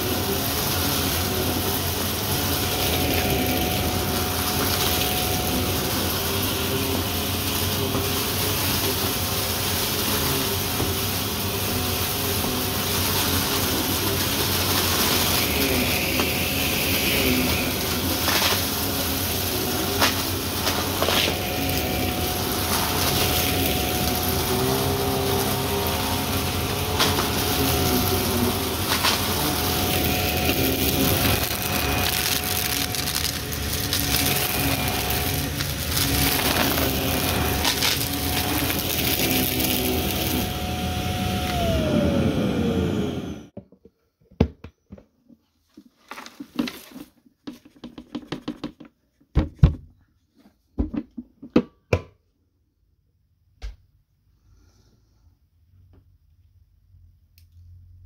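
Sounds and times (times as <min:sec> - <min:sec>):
vacuum crunching debris: 0:00.0 - 0:42.1
upright vacuum motor whine: 0:00.0 - 0:43.6.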